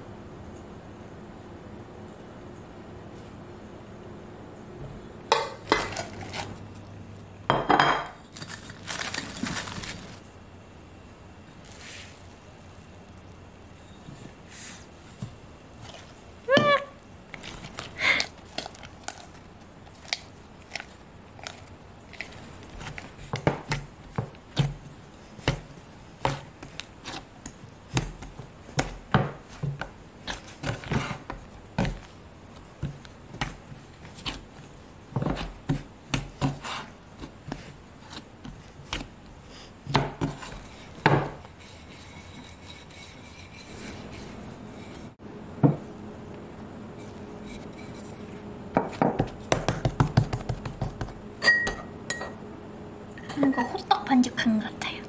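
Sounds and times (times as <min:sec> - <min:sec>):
steady hum: 0:00.0 - 0:55.0
hands slapping bread dough: 0:22.2 - 0:42.0, 0:48.8 - 0:51.2.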